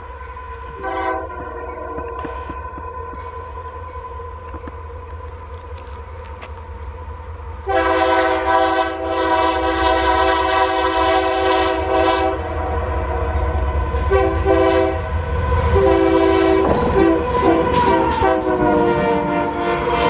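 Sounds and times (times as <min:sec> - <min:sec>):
locomotive air horn: 0:00.0 - 0:03.4, 0:07.6 - 0:12.7, 0:13.9 - 0:20.0
train rumbling: 0:00.0 - 0:20.0.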